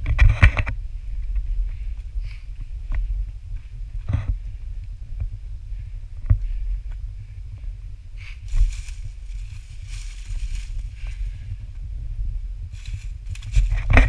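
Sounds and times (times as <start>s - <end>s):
wind rumble: 0.0s - 14.0s
footsteps on gravel and rock: 8.4s - 11.4s, 12.8s - 14.0s.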